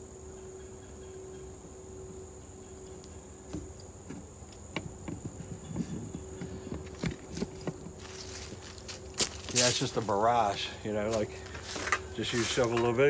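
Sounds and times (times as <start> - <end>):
insects trilling: 0.0 - 13.0
footsteps on dry leaves: 5.9 - 13.0.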